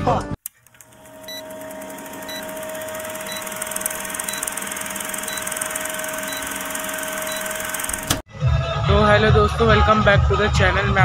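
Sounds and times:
film projector whir and clatter: 0.4s - 8.2s
steady hum: 0.6s - 8.2s.

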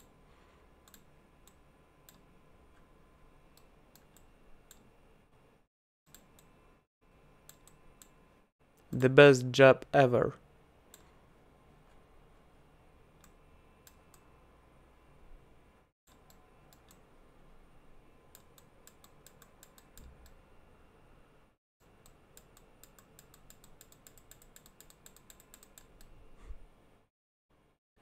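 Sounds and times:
computer mouse and keyboard clicking: 0.8s - 2.9s, 3.5s - 4.9s, 7.4s - 8.2s, 18.3s - 20.4s, 22.0s - 26.2s.

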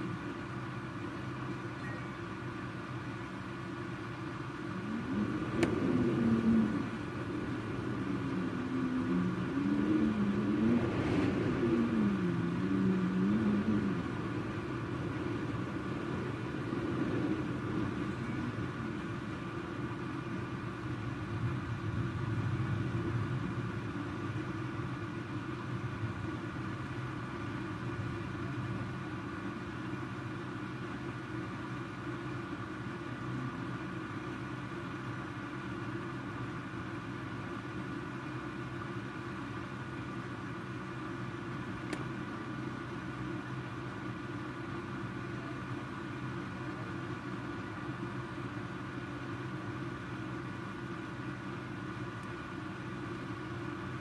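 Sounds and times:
steady rushing noise: 3.9s - 29.8s
storm wind howling: 4.6s - 24.8s.

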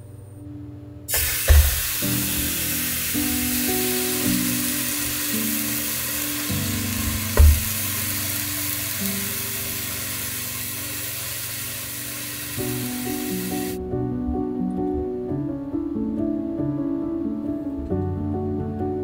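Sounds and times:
soft background music: 0.0s - 19.0s
low thump: 7.4s - 7.8s.

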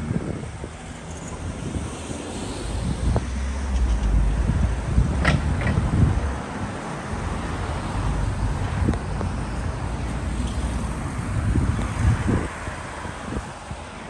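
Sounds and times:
road traffic: 0.0s - 14.0s
wind buffeting microphone: 0.0s - 14.0s
heavy low rumble: 2.6s - 6.4s.

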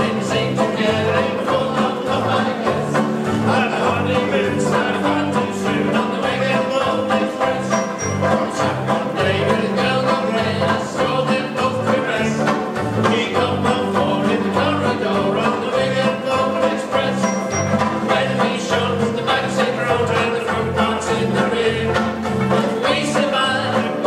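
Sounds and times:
banjo ukuleles strummed: 0.0s - 24.0s
voices singing along: 0.0s - 24.0s.

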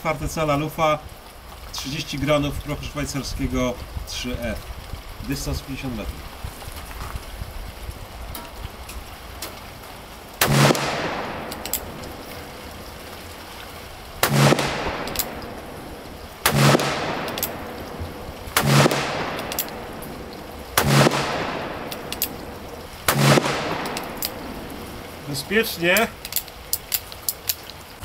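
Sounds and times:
revolver shots echoing: 10.4s - 13.5s, 14.2s - 25.2s
faint clicks: 11.2s - 12.5s, 14.9s - 16.1s, 17.1s - 18.2s, 19.2s - 20.6s, 21.4s - 22.8s, 23.5s - 25.1s.

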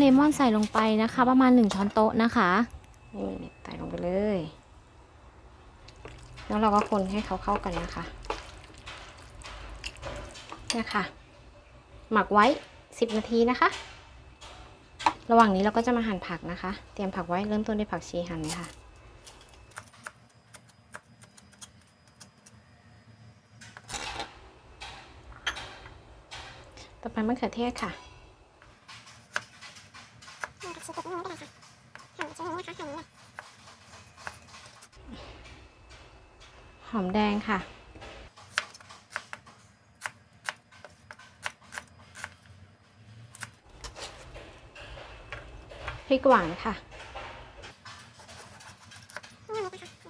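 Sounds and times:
knife blade scraping board: 47.9s - 49.4s.

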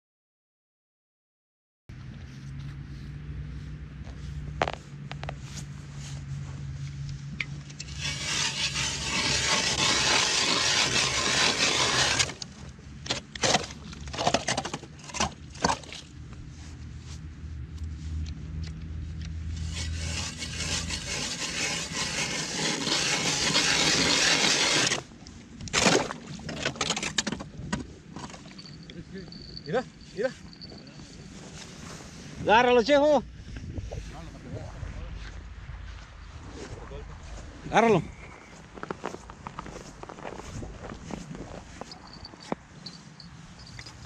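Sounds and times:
ice auger grinding through ice: 7.8s - 16.0s, 19.6s - 27.4s.

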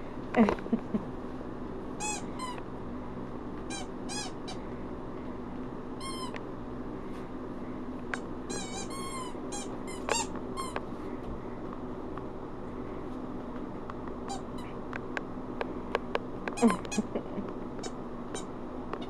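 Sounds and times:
squeaky chew toy squeaking: 3.7s - 4.4s, 6.0s - 6.3s, 8.5s - 10.8s.

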